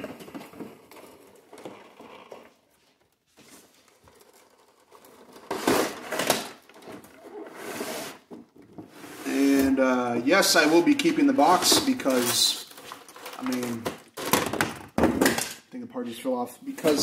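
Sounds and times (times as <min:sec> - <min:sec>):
plastic tray scraping cardboard box: 0:04.1 - 0:13.8.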